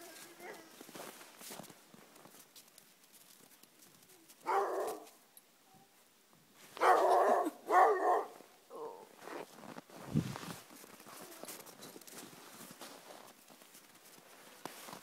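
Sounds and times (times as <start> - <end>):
dogs barking: 4.4 - 5.1, 6.8 - 9.0.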